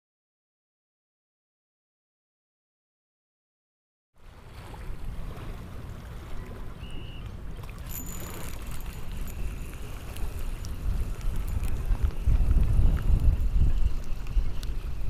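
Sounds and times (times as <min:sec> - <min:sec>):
water sloshing: 0:04.2 - 0:15.0
wind buffeting microphone: 0:04.5 - 0:15.0.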